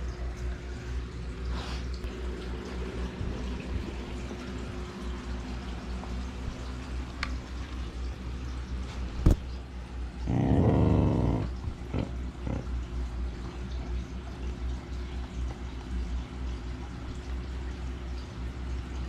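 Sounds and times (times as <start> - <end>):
dog growling: 10.2 - 12.9.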